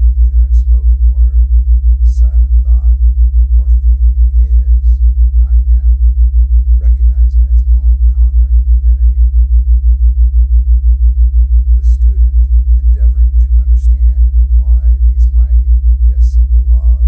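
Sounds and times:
low pulsing tone: 0.0 - 17.0
faint voice speaking: 0.2 - 1.4, 2.0 - 3.0, 3.6 - 6.0, 6.8 - 9.2, 11.8 - 17.0.

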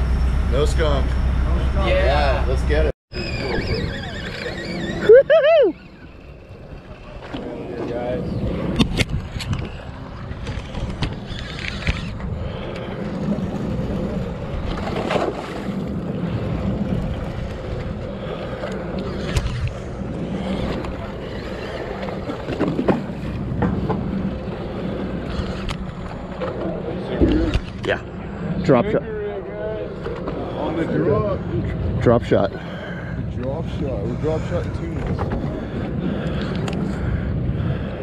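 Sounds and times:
boat engine drone: 0.0 - 38.0
water noise: 0.0 - 38.0
wind: 0.0 - 38.0.

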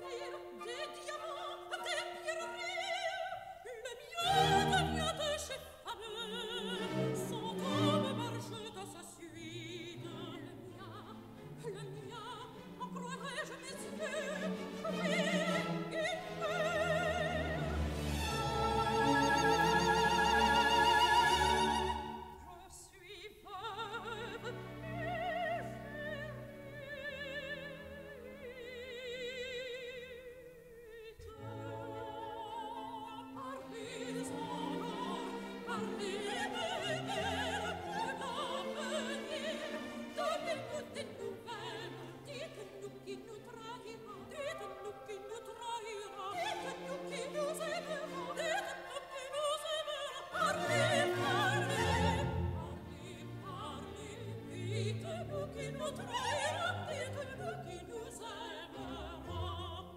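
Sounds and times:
operatic singing with vibrato: 0.0 - 59.9
orchestra playing: 4.3 - 5.4, 6.4 - 8.8, 9.5 - 22.4, 31.4 - 59.9.

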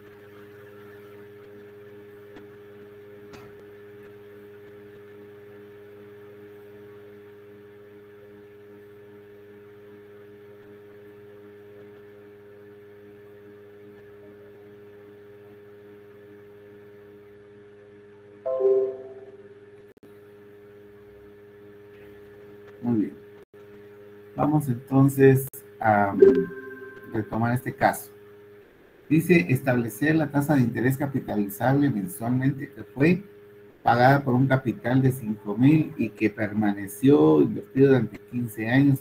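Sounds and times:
steady electrical hum: 0.0 - 39.0
notification chime: 26.2 - 27.4.

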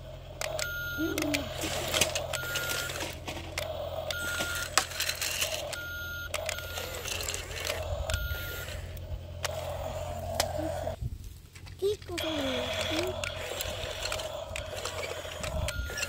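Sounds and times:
toy excavator electric hum: 0.0 - 16.0
short electronic beeps: 0.5 - 3.1, 4.1 - 4.8, 5.6 - 8.9, 15.4 - 16.0
wheels driving over gravel: 1.1 - 16.0.

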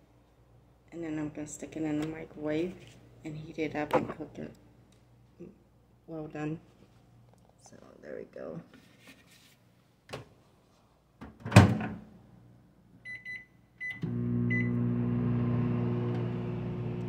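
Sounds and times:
microwave humming: 13.8 - 17.0.

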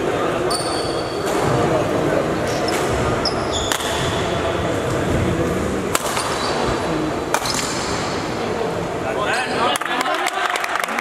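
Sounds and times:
crowd chatter: 0.0 - 11.0
racket hitting shuttlecock: 2.7 - 4.3, 5.9 - 8.2.

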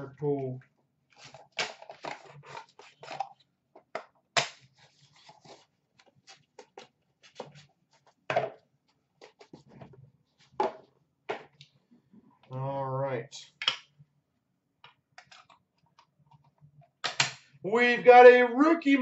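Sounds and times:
hands handling cardboard boxes: 3.8 - 10.9.

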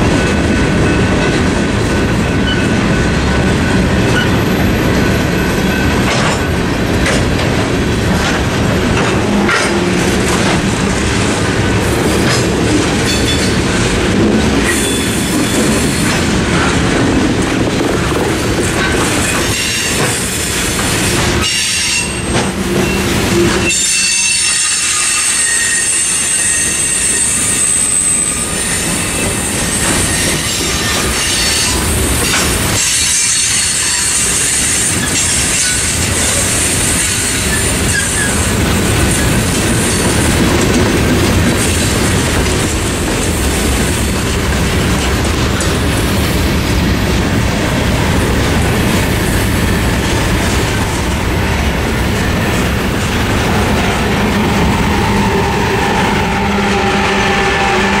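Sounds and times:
freight train rumble and clatter: 0.0 - 58.0
high wheel squeal: 14.7 - 16.0, 21.4 - 31.8.

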